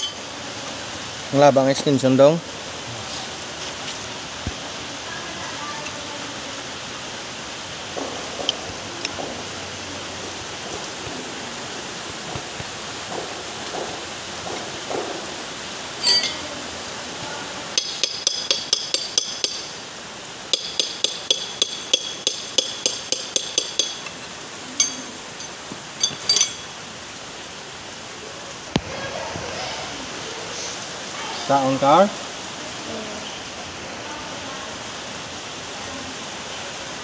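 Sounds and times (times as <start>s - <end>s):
metal bar tapping on steel: 16.0s - 16.5s, 17.8s - 19.8s, 20.5s - 26.8s.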